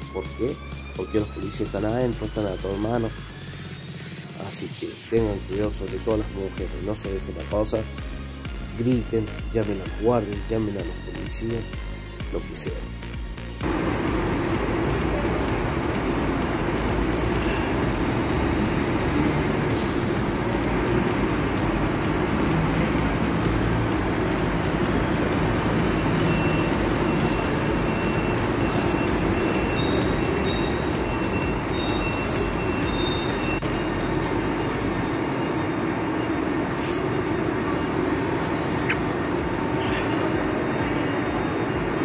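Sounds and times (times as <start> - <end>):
diesel engine running: 13.5 - 42.0.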